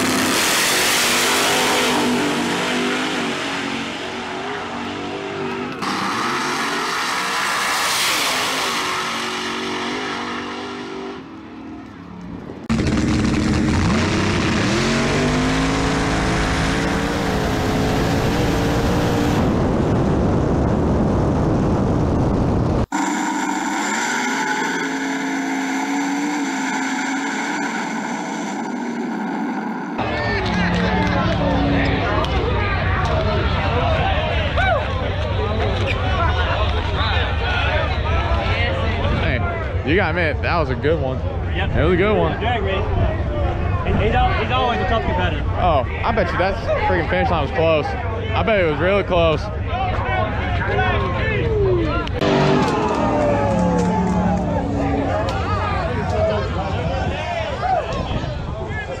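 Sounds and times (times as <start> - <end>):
drag racing engines howling: 0.0 - 21.2, 22.1 - 59.0
wind rush: 18.0 - 22.9.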